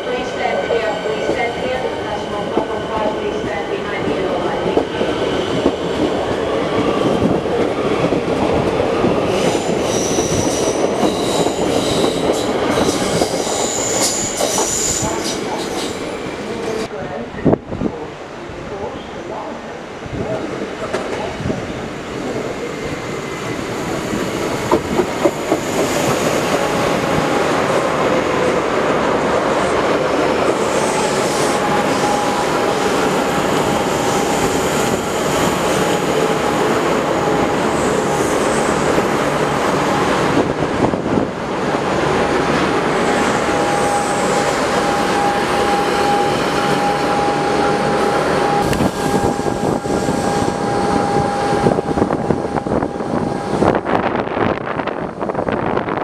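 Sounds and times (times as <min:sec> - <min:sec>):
steady train whine: 0:00.0 - 0:56.0
train wheels clattering over track: 0:24.5 - 0:26.7.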